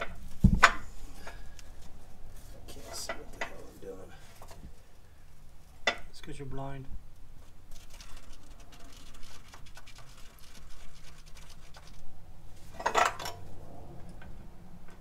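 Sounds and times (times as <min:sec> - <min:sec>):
faint steady hum: 0:00.0 - 0:15.0
marker scratching: 0:07.7 - 0:12.0.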